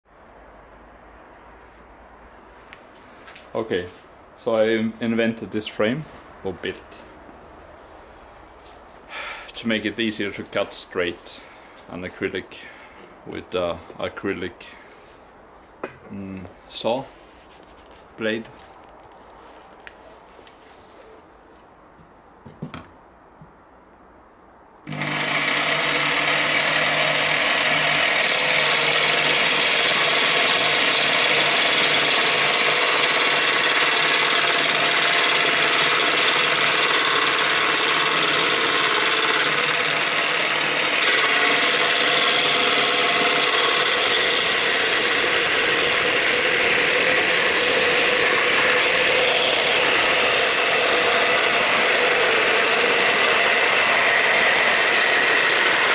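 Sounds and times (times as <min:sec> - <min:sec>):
jigsaw sawing plastic sheet: 0:24.9 - 0:55.9.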